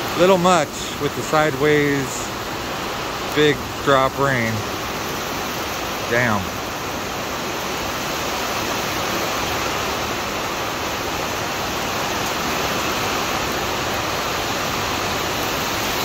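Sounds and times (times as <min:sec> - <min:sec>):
heavy rain on wet pavement: 0:00.0 - 0:16.0.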